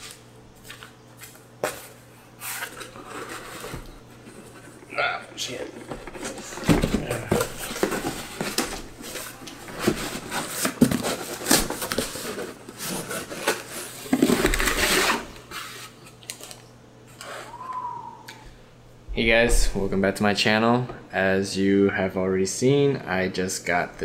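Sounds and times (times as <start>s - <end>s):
scrapes and knocks of box: 5.7s - 15.3s.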